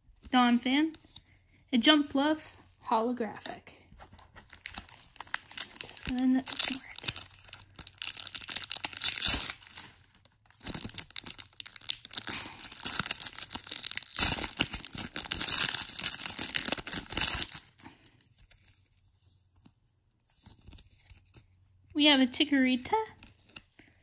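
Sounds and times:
foil wrapper crinkling and tearing: 4.1s - 19.0s.

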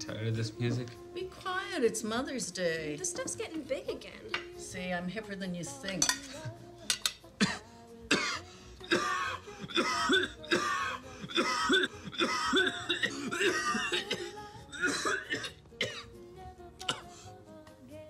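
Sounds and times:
young man coughing: 7.4s - 16.1s.

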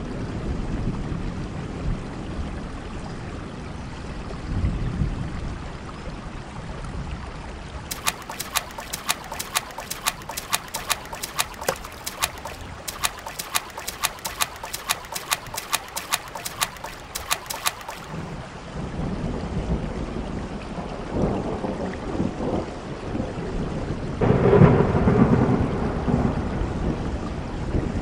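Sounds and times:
bare feet splashing in puddle: 7.9s - 18.6s
steady rain: 7.9s - 28.0s
thunder rumble: 24.2s - 27.4s.

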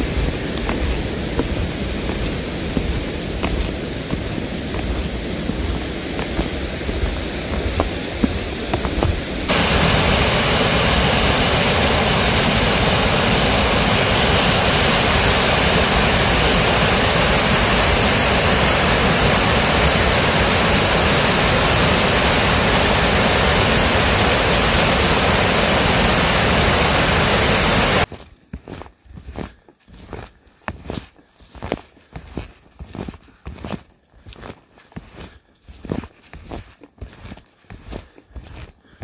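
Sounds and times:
water rushing over falls: 0.0s - 28.1s.

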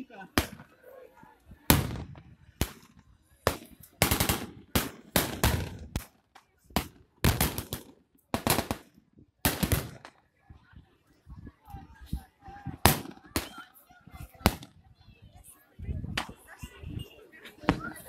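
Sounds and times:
pyrotechnic blasts: 1.6s - 10.2s
blank gunshots: 3.5s - 6.1s, 6.8s - 10.1s.

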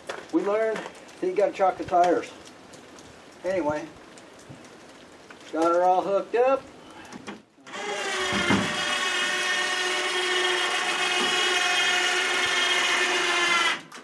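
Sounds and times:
electric winch motor whining: 7.7s - 14.0s.

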